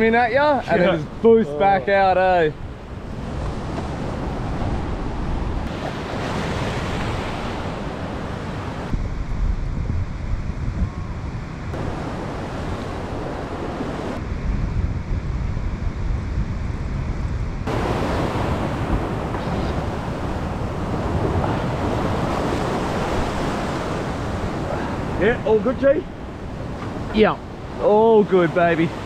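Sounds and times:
wind buffeting microphone: 0:00.0 - 0:29.0
waves breaking on rocks: 0:17.7 - 0:29.0.

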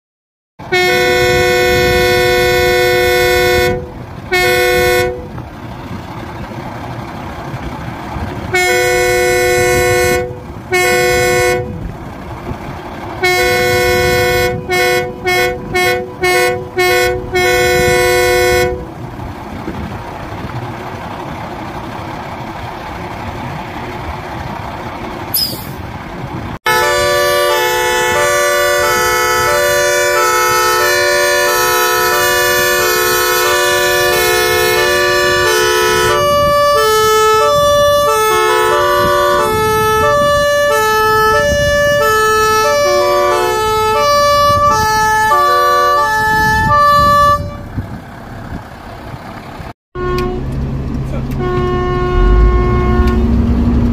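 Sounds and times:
fire engine horn blasts: 0:00.6 - 0:05.5, 0:08.5 - 0:11.9, 0:13.2 - 0:19.0, 0:26.6 - 0:47.8, 0:50.0 - 0:50.6, 0:51.2 - 0:53.7
truck engine idling: 0:00.6 - 0:53.9.

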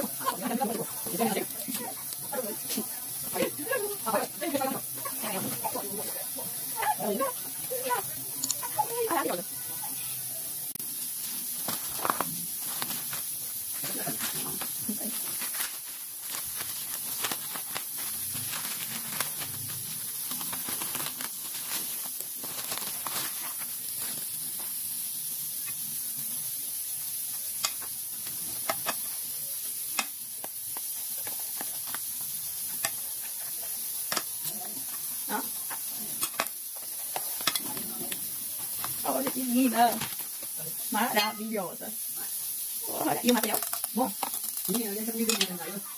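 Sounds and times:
steady hiss: 0:00.0 - 0:45.9
plastic bag rustling and crinkling: 0:11.0 - 0:25.0, 0:30.6 - 0:41.9, 0:42.8 - 0:45.9.

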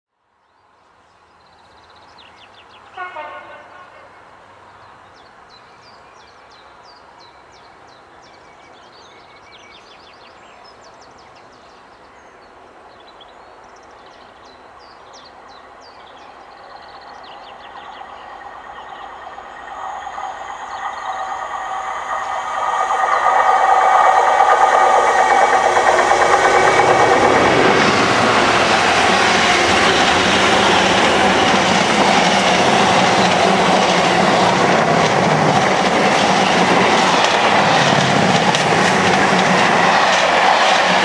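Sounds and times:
train approaching: 0:02.4 - 0:05.1, 0:12.5 - 0:41.0
train horn blast: 0:03.0 - 0:04.2
birds singing: 0:04.8 - 0:37.2.

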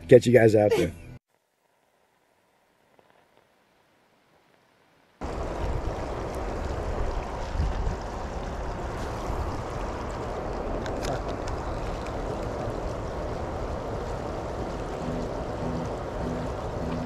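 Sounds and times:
deep rumble: 0:05.2 - 0:17.0
water pouring over spillway: 0:05.2 - 0:17.0.

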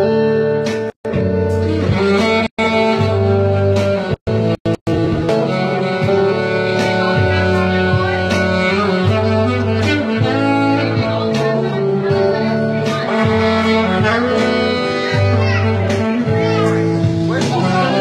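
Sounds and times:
bass and drums beat: 0:00.0 - 0:18.0
electric guitar: 0:00.0 - 0:18.0
saxophone holding notes: 0:00.0 - 0:18.0.

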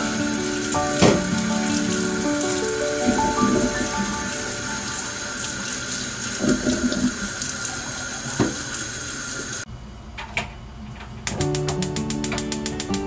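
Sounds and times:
water pouring into a sink: 0:00.0 - 0:09.6.

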